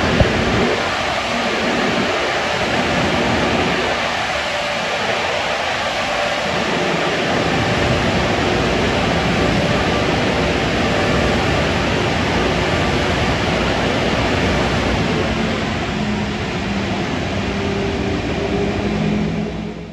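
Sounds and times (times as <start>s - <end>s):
car wash blower dryers rushing air: 0.0s - 19.9s
low hum: 6.5s - 19.9s.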